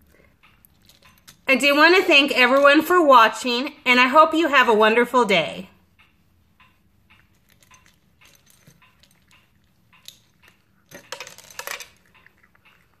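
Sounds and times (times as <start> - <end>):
cat crunching dry kibble: 0.1 - 1.6, 7.2 - 13.0.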